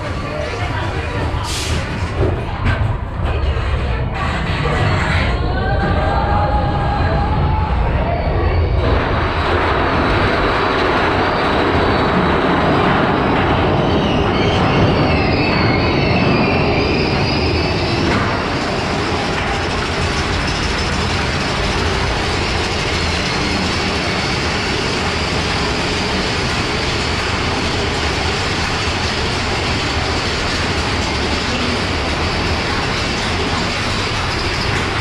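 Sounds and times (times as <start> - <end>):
roller coaster wheels rumbling: 0.0 - 35.0.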